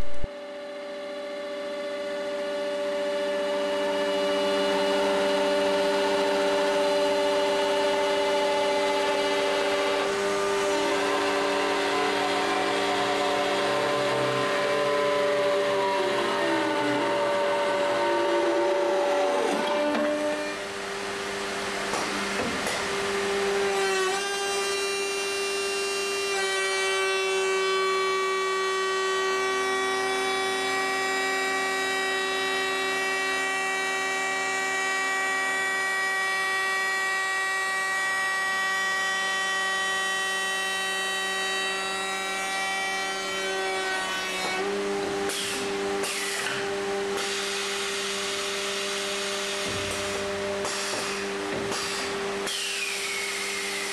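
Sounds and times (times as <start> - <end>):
router bit cutting wood: 0.0 - 53.9
router motor whining: 0.0 - 53.9.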